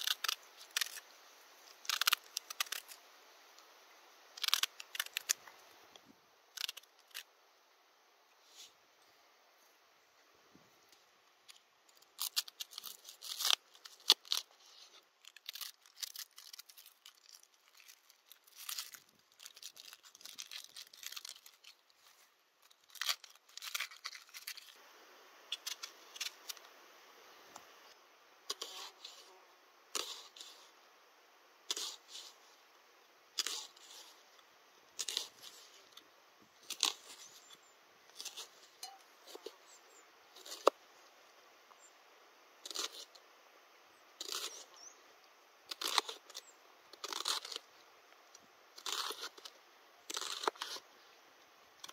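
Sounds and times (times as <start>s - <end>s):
onion skin crackling: 0.0s - 3.0s, 4.3s - 5.6s, 6.5s - 7.3s, 11.4s - 24.8s, 35.0s - 36.0s, 36.6s - 39.6s, 44.2s - 44.8s, 45.7s - 47.7s, 48.7s - 50.9s.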